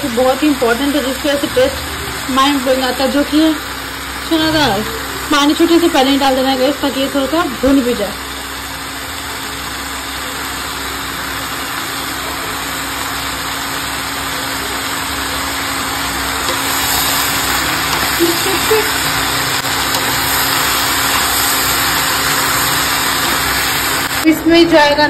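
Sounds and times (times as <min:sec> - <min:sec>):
vegetables sizzling in hot oil: 0:00.0 - 0:24.3
spatula stirring in pan: 0:14.8 - 0:24.2.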